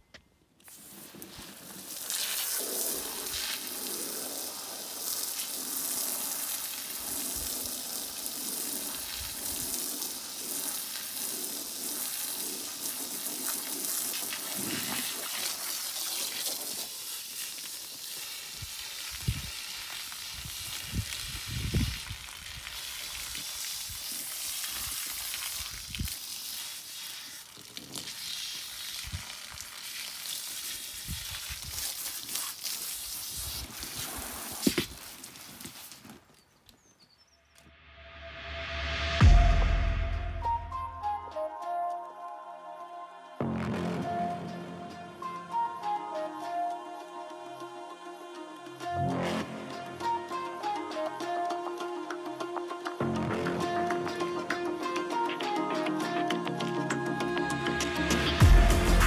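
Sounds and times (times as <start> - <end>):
hose spray hissing on gravel: 0.6 - 36.5, 58.4 - 59.0.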